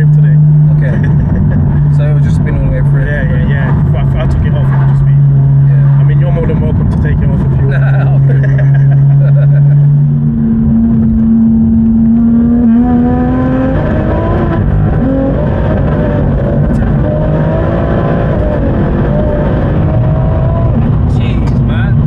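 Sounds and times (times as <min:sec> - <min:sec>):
car engine accelerating: 0:00.0 - 0:22.0.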